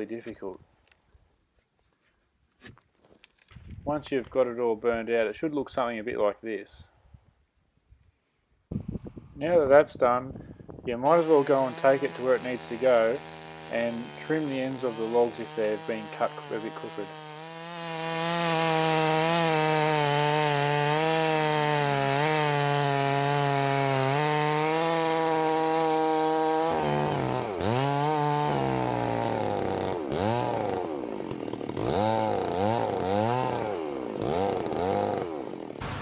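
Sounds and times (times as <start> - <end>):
chainsaw cutting log: 11.0 - 36.0.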